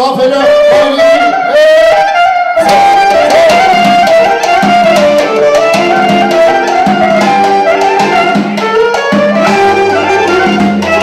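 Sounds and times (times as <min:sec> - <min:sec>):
keyboard lead melody: 0:00.0 - 0:11.0
steady drum beat: 0:02.6 - 0:11.0.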